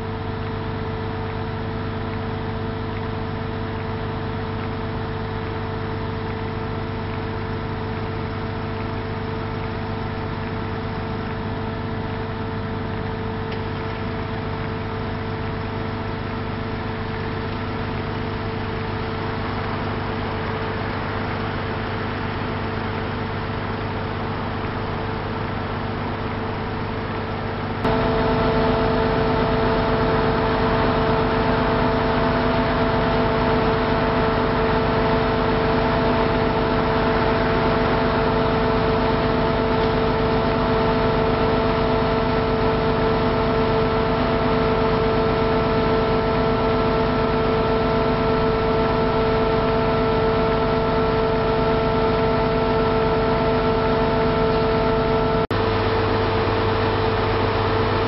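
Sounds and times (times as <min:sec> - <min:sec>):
machine whine: 0:00.0 - 0:58.0
heavy diesel engine running: 0:27.8 - 0:58.0.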